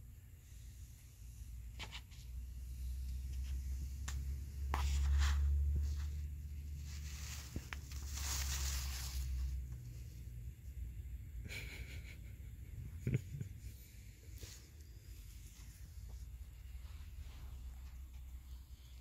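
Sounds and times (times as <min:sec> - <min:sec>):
close-up rustling and breathy noise: 0:00.0 - 0:19.0.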